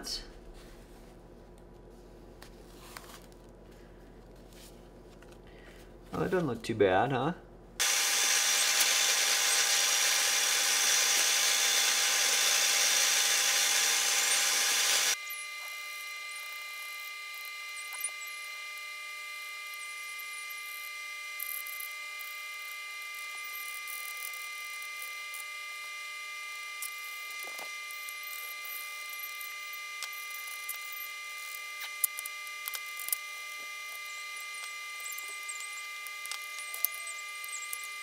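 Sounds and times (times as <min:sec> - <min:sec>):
drill press running: 0:07.8 - 0:15.2.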